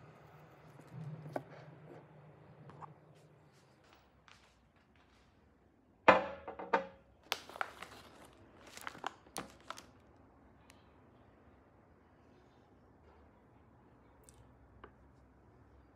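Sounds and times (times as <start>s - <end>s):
glass mug knocking on table: 6.1s - 7.0s
plastic bag crinkling: 7.2s - 10.1s.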